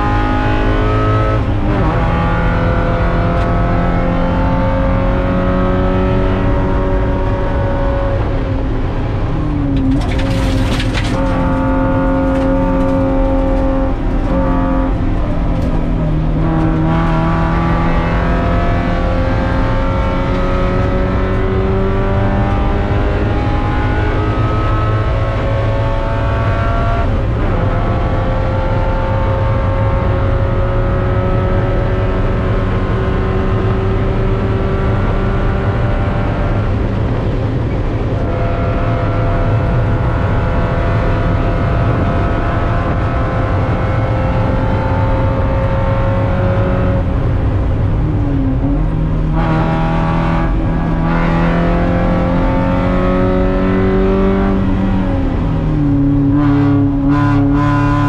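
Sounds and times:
race car engine revving: 0.0s - 58.0s.

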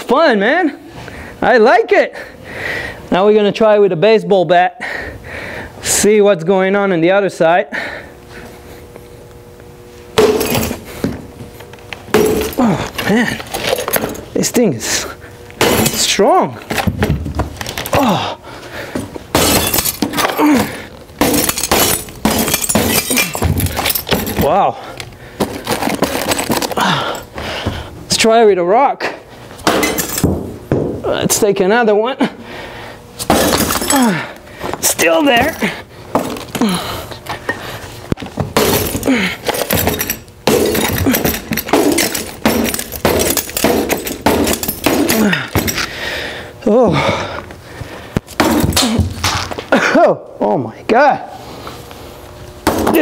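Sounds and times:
glass crunching under heavy blows: 10.2s - 10.8s, 15.6s - 16.4s, 19.3s - 24.6s, 25.4s - 27.0s, 29.6s - 30.3s, 33.2s - 34.1s, 38.5s - 45.9s.

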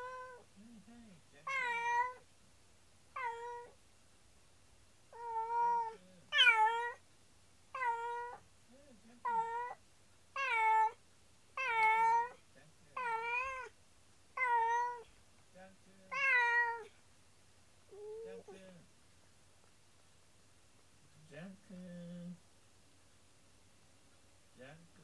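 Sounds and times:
cat meowing: 0.0s - 0.5s, 1.4s - 2.2s, 3.2s - 3.8s, 5.1s - 7.0s, 7.7s - 8.4s, 9.2s - 9.8s, 10.4s - 11.0s, 11.6s - 12.4s, 13.0s - 13.8s, 14.4s - 15.1s, 16.1s - 17.0s.

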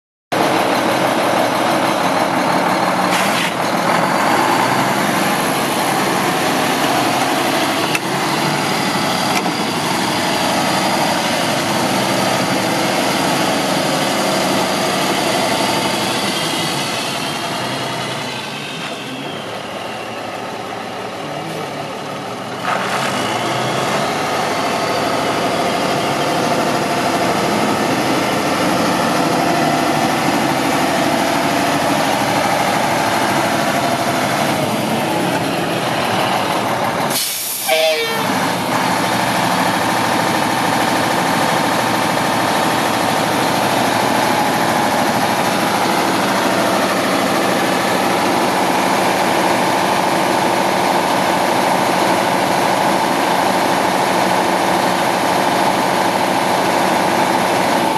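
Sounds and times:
truck diesel engine driving: 0.3s - 57.9s.

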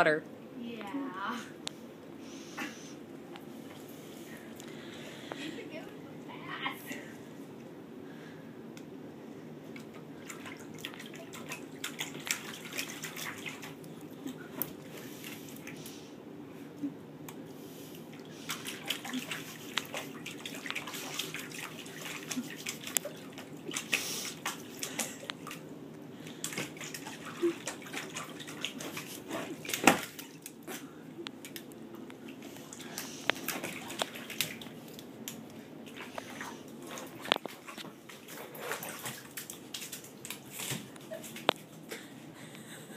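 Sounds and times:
puppy splashing water in bowl: 9.8s - 15.8s, 18.1s - 25.6s, 26.4s - 30.7s, 31.4s - 41.8s.

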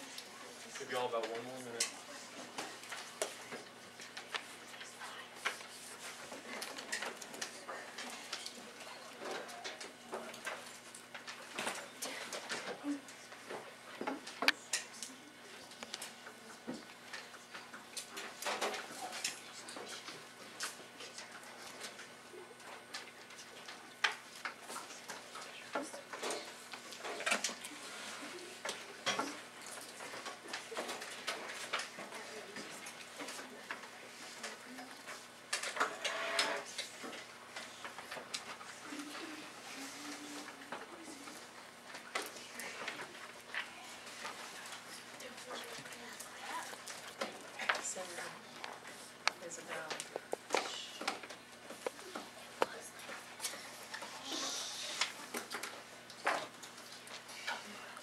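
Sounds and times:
faint student chatter: 0.0s - 10.8s, 11.4s - 23.0s, 24.6s - 56.4s
pencils and papers tapping: 0.0s - 58.0s
faint murmur of voices: 11.5s - 22.7s, 38.6s - 55.7s.

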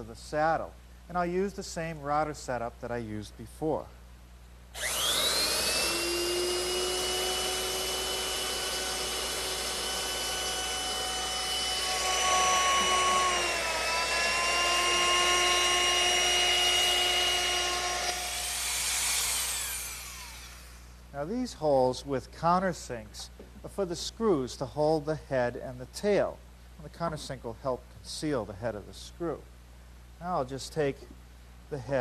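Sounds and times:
electric router cutting wood: 4.8s - 20.9s.

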